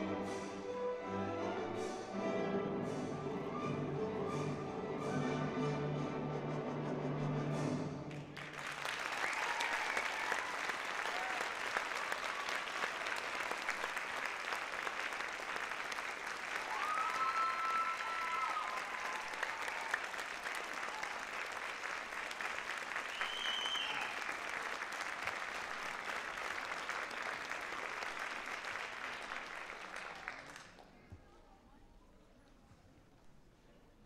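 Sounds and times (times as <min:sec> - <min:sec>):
audience applauding: 0:08.1 - 0:31.0.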